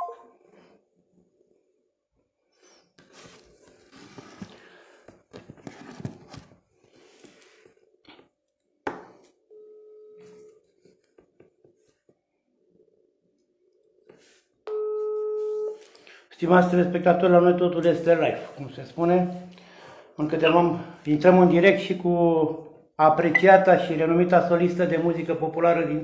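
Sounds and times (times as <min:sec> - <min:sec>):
telephone ringing tone: 0:00.0 - 0:00.3, 0:09.5 - 0:10.6, 0:14.7 - 0:15.8
rustling handling noise: 0:03.0 - 0:07.7.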